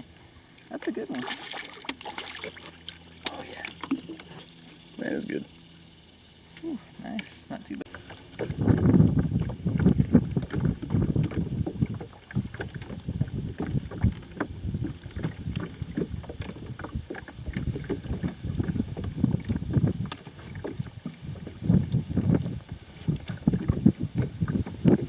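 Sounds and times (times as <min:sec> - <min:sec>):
water lapping against boat: 0:00.0 - 0:25.0
wind buffeting microphone: 0:07.9 - 0:25.0.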